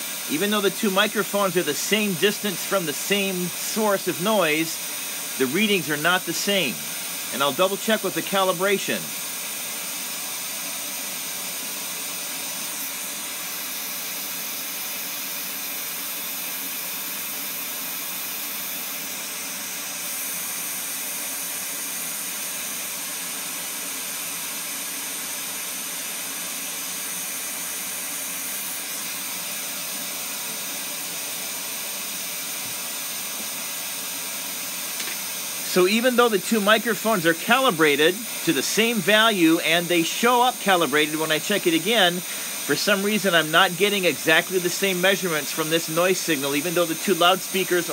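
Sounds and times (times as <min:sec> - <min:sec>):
broadband test noise hiss: 0:00.0 - 0:09.3, 0:34.6 - 0:47.9.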